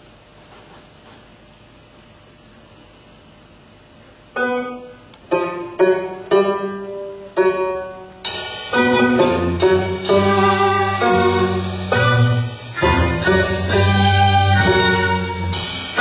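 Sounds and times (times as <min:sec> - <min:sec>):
dance music: 0:08.7 - 0:16.0.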